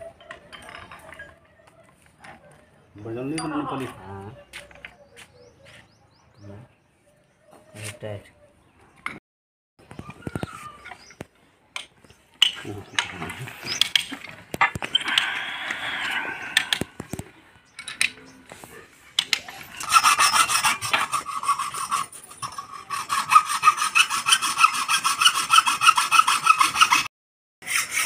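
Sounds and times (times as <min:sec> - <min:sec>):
pipe tools scraping and knocking: 0:00.0 - 0:04.0, 0:10.4 - 0:27.0
hacksaw cutting metal pipe: 0:19.2 - 0:28.0.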